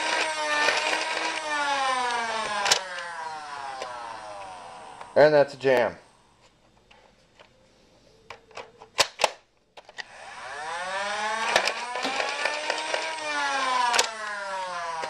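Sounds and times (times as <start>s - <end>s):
toy blaster motors whining: 0.0s - 5.2s, 10.0s - 15.0s.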